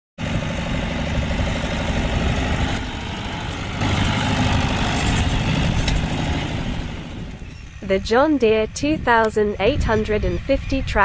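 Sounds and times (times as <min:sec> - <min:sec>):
tractor diesel engine running: 0:00.2 - 0:11.0.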